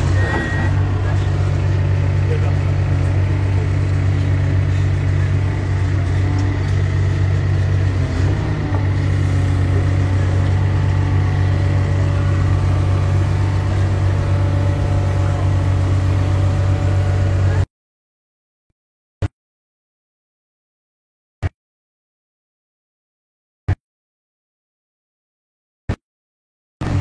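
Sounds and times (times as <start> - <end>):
excavator diesel engine running: 0.0 - 17.7.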